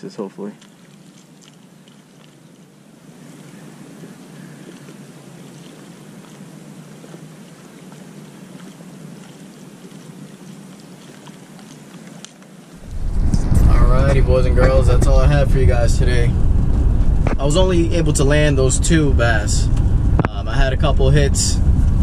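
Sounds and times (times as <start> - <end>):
small waves lapping: 0.0 - 16.3
wind noise on microphone: 12.8 - 22.0.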